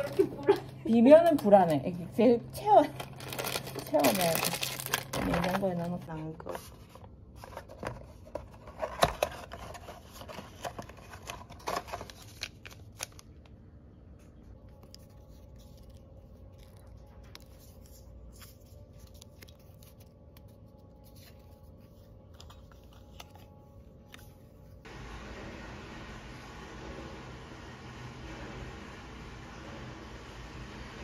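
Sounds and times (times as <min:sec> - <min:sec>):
paper sachet crinkling and tearing: 0:02.9 - 0:06.1, 0:09.0 - 0:13.5, 0:14.6 - 0:24.8.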